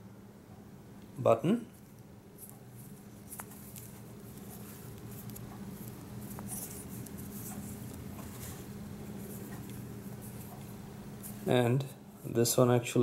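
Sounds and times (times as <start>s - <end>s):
steady low hum: 0.0s - 13.0s
fingers rustling on microphone: 1.8s - 11.5s.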